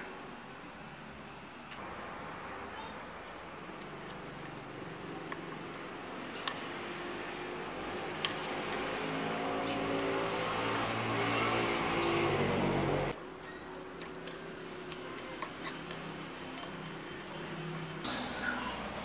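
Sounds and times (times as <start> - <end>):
engine-like hum: 1.8 - 13.2
fork mashing banana: 3.7 - 11.6, 13.4 - 18.0.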